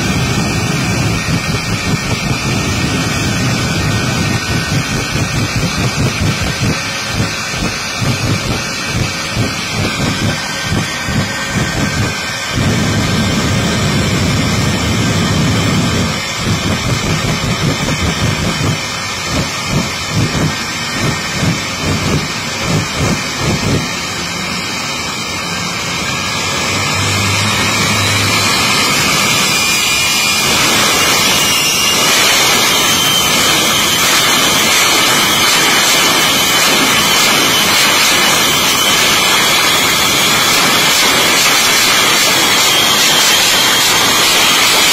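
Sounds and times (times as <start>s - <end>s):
low booming pulses: 0.0s - 23.9s
jet engines running: 0.0s - 44.9s.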